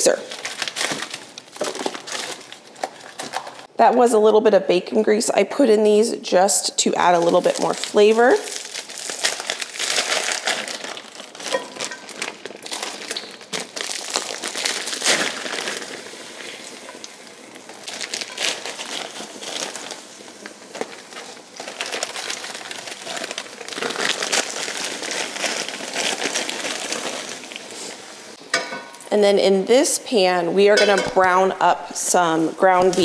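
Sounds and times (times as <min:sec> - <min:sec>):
plastic bags crinkling: 0:00.1 - 0:03.7, 0:07.1 - 0:28.0.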